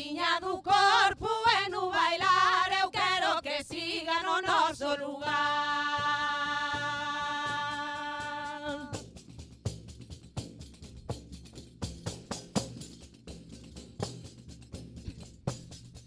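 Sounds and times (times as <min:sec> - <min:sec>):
women singing: 0:00.0 - 0:09.0.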